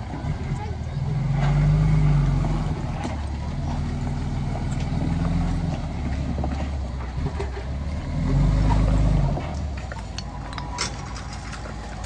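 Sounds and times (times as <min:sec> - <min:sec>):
heavy diesel engine running: 0:00.0 - 0:12.0.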